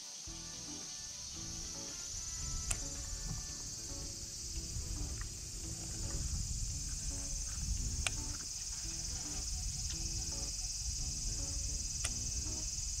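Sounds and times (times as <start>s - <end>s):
cicadas droning: 0.0s - 13.0s
low rumble: 2.4s - 12.5s
sharp click: 2.7s - 3.4s, 8.0s - 8.5s, 12.0s - 12.6s.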